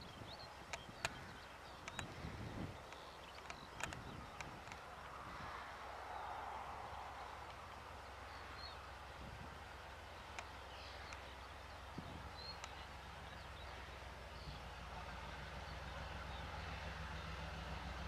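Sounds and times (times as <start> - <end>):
distant locomotive engine hum: 0.0 - 18.0
faint ticks: 0.7 - 2.2, 2.8 - 4.9, 10.3 - 11.3, 12.4 - 12.8.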